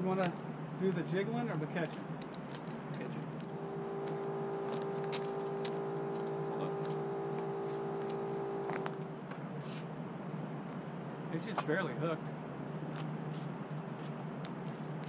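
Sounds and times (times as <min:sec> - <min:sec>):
steady beeping tone: 0:03.4 - 0:09.2.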